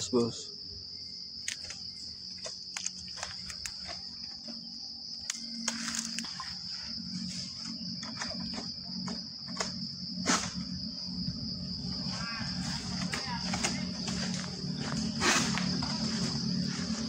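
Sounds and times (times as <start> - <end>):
insects buzzing: 0.0 - 17.0.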